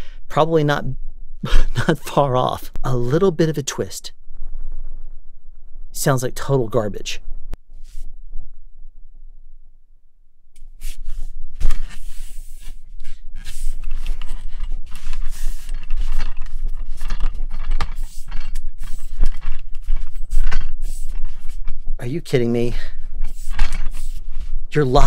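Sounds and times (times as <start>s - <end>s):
boom pole handling scraping: 10.6s - 25.0s.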